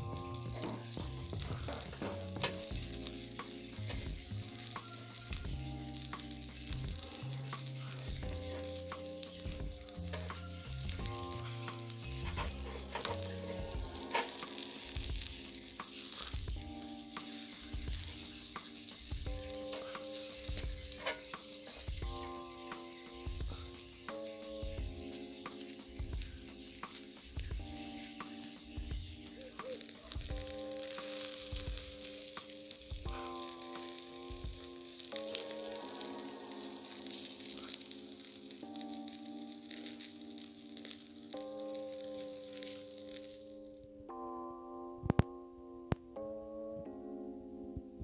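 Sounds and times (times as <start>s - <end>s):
chicken sizzling on a grill: 0.0s - 43.8s
crackles and clicks: 0.0s - 44.2s, 45.0s - 48.0s
music: 0.0s - 48.0s
metal tongs clicking on grill: 11.4s - 14.8s, 20.9s - 21.8s.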